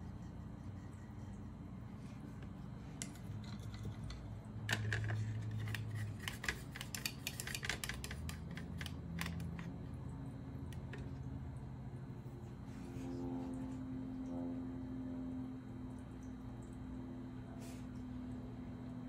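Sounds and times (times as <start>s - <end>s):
low steady hum: 0.0s - 19.0s
paintbrush clicking on container: 5.6s - 9.7s.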